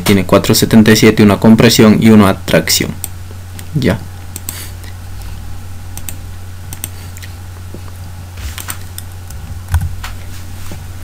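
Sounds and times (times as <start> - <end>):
steady low hum: 0.0 - 11.0
computer mouse clicks: 4.3 - 4.6, 6.0 - 7.3.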